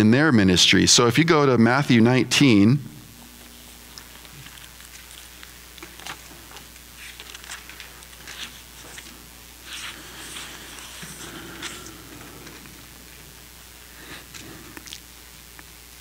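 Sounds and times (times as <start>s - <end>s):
thin pages rustling: 4.0s - 12.7s.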